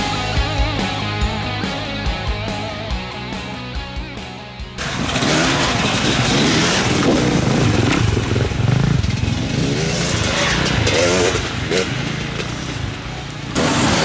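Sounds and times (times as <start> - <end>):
rock music: 0.0 - 14.0
dirt bike engines revving: 4.8 - 14.0.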